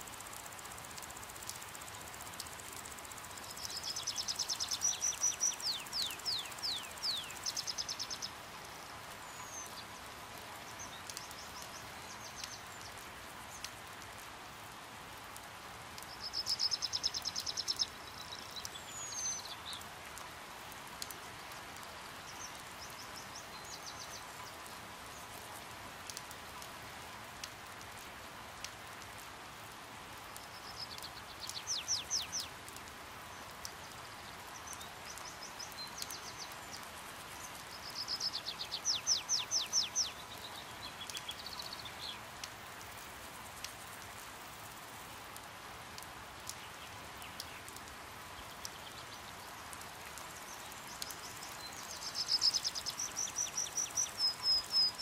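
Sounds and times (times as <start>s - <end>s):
rain patter: 0.0s - 55.0s
hummingbirds chipping: 0.2s - 14.0s, 30.4s - 42.7s, 46.4s - 55.0s.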